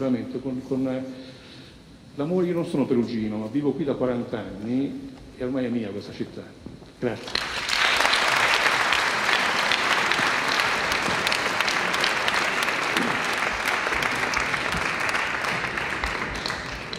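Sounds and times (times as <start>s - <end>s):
audience applauding: 7.2s - 16.9s.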